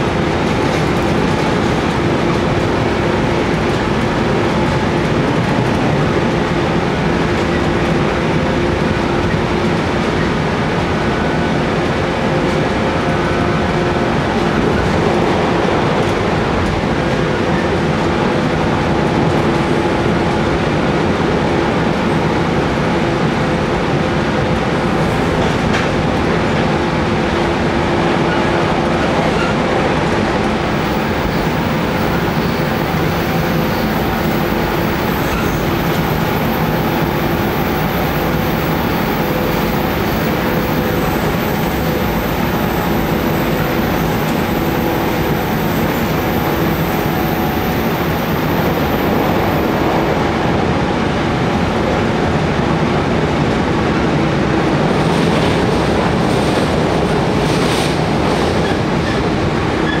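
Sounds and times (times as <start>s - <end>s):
wheel and rail rumble: 0.0s - 60.0s
train traction motor hum: 23.1s - 60.0s.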